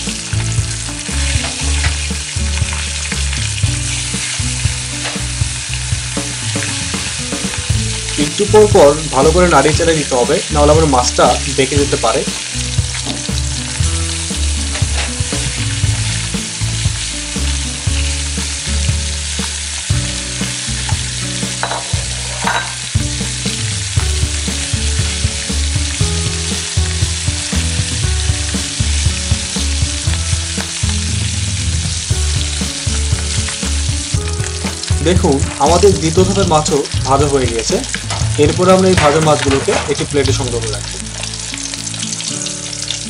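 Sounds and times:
fish sizzling in hot oil: 0.0s - 43.0s
metal spatula stirring: 37.9s - 40.1s.

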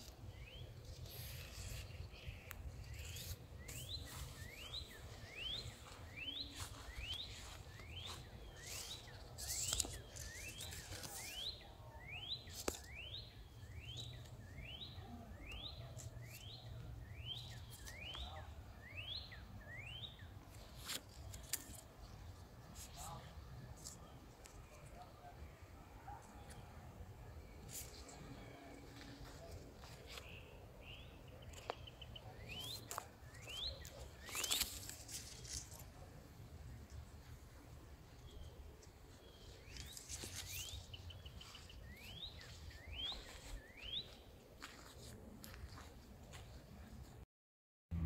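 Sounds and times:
leaves rustling and knocking: 1.0s - 11.6s, 12.5s - 13.0s, 32.7s - 36.1s, 38.8s - 41.7s.

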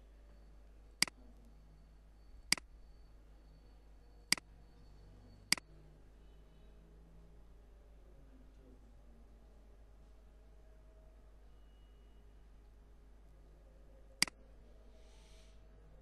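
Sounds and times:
faint room hum: 0.0s - 16.0s.

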